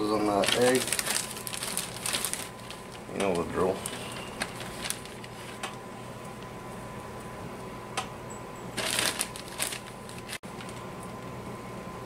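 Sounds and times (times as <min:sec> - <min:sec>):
plastic bag crinkling: 0:00.1 - 0:05.6, 0:08.8 - 0:10.8.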